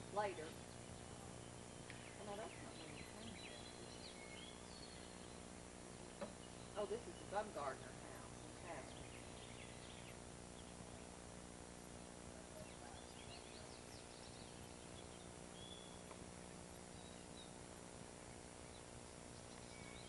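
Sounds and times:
low hiss and hum: 0.0s - 20.0s
bird chirps and whistles: 13.2s - 16.0s.

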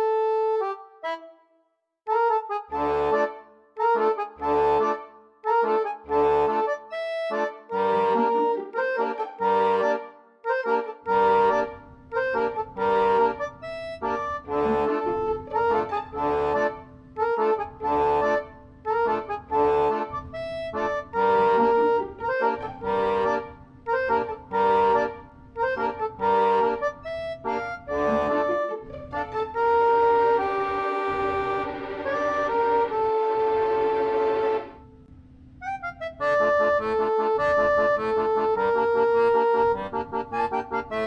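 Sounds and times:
accordion melody: 0.0s - 41.0s
bass line: 11.1s - 34.8s.

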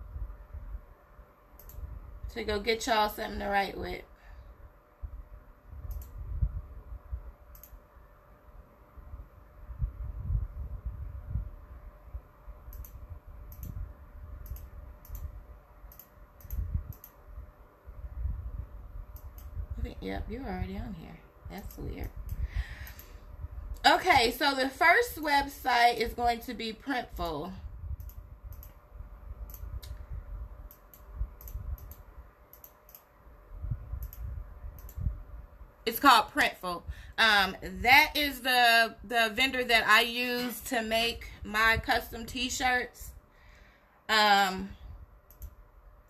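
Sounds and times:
light typing clicks: 1.5s - 1.9s, 5.8s - 6.2s, 7.5s - 7.8s, 12.7s - 13.8s, 14.4s - 17.2s, 19.1s - 19.6s, 28.0s - 28.8s, 29.4s - 33.1s, 33.9s - 35.1s, 45.2s - 45.6s.

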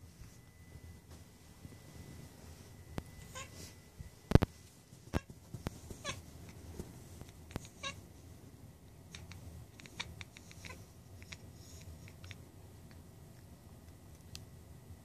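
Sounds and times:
cat chirping and chattering: 3.2s - 3.7s, 5.9s - 6.3s, 7.3s - 8.1s, 9.0s - 12.5s.

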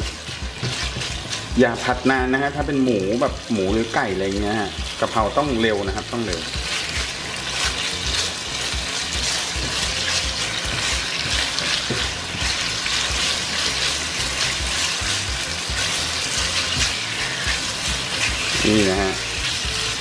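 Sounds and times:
meat sizzling in a hot pan: 0.0s - 20.0s.

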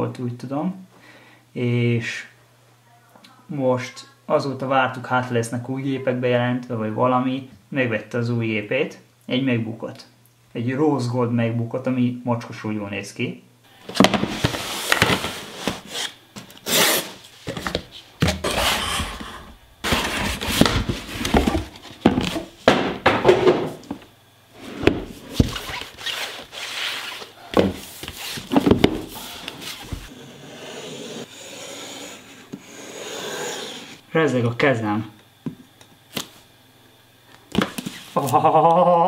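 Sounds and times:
box rubbing and rustling: 13.9s - 22.6s, 24.6s - 31.3s.

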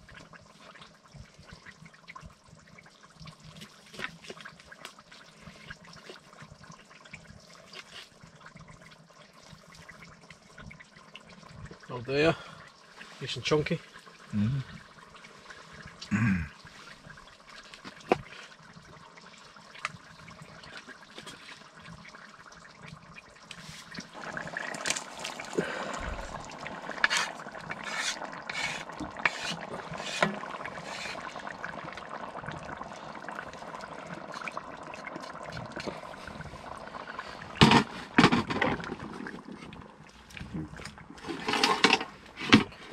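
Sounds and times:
stew bubbling in a pot: 0.0s - 42.9s
wooden spoon scraping a pot: 26.2s - 31.4s.

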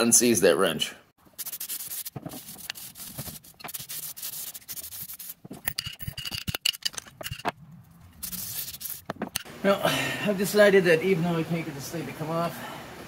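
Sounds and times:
wire brush scrubbing metal: 1.3s - 7.5s, 8.2s - 9.5s.

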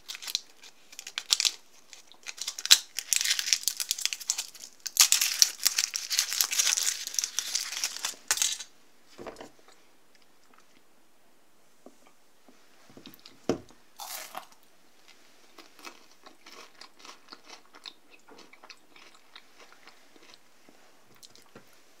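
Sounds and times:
chocolate shell crunching: 0.0s - 8.7s, 14.0s - 14.6s.

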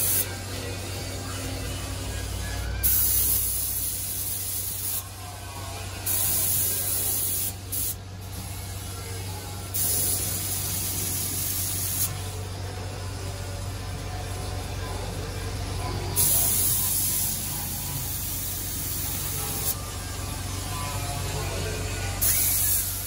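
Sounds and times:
spray gun hissing: 16.2s - 19.8s, 22.2s - 23.0s.

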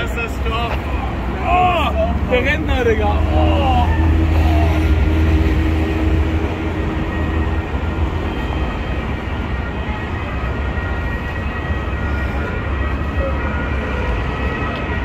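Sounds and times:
road traffic rumble: 0.0s - 15.0s
street hum: 0.0s - 15.0s.

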